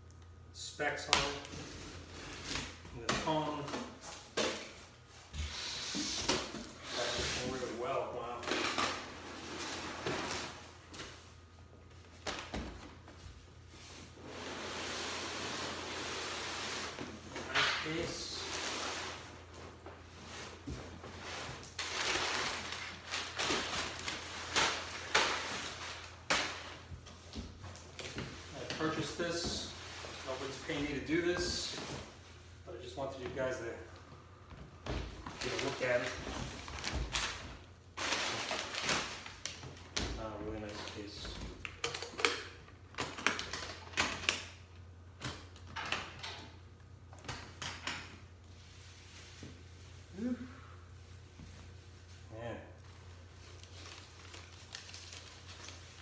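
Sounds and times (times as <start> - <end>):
packing paper rustling and crinkling: 21.0 - 26.8, 35.3 - 40.0, 53.2 - 56.0.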